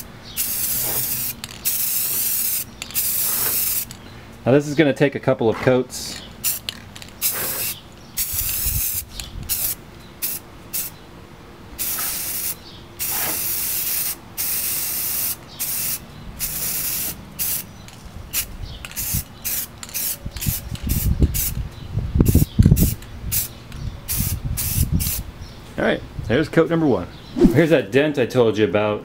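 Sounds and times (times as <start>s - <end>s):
aerosol can spraying bursts: 0.4s - 3.9s, 7.2s - 9.0s, 11.8s - 17.6s.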